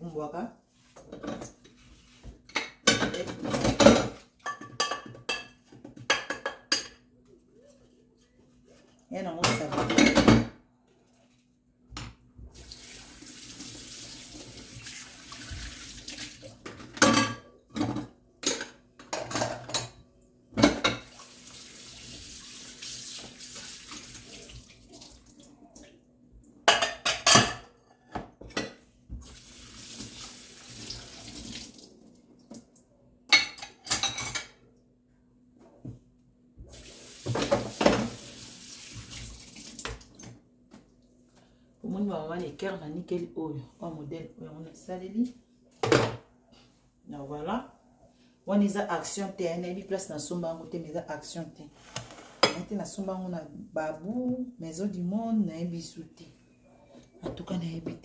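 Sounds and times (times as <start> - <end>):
dishes and utensils clattering: 1.0 - 1.8, 2.4 - 7.1, 9.4 - 10.6, 16.6 - 20.0, 26.7 - 28.9, 33.3 - 34.6
kitchen tap running: 12.5 - 16.6, 20.8 - 25.4, 29.1 - 32.0, 36.7 - 40.3.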